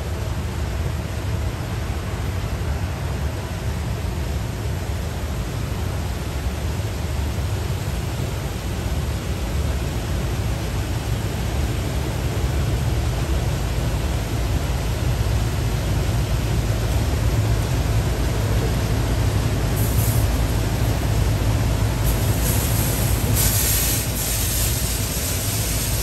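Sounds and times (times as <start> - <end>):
water spray: 19.2 - 26.0.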